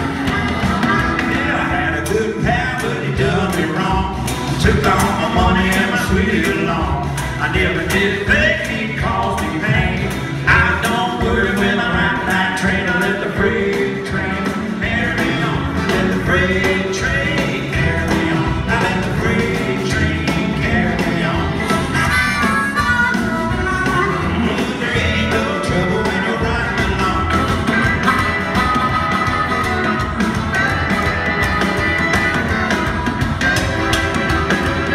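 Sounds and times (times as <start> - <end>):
harmonica wailing: 0.0 - 3.5, 20.8 - 34.9
live country band playing: 0.0 - 34.9.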